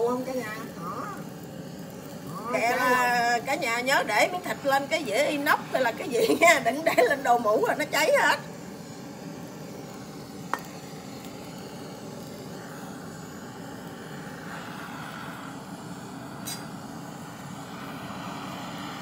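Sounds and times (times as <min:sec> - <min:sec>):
butane torch flame whooshing: 0:00.0 - 0:19.0.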